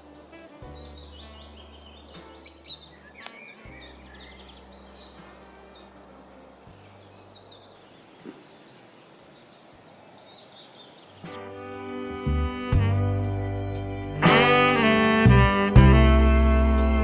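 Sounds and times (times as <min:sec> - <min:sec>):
small birds chirping: 0:00.0 - 0:11.4.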